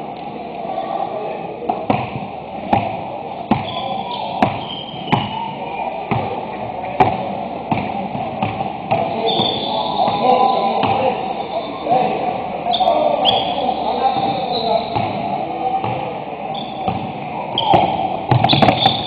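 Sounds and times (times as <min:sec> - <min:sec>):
sneaker squeaks: 0:03.4 - 0:05.6, 0:09.0 - 0:12.0, 0:12.7 - 0:15.2, 0:16.5 - 0:19.0.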